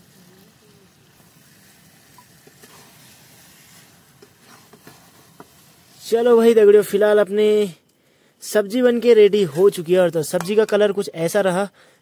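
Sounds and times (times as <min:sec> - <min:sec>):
mushrooms sizzling in a pan: 0:00.0 - 0:07.6.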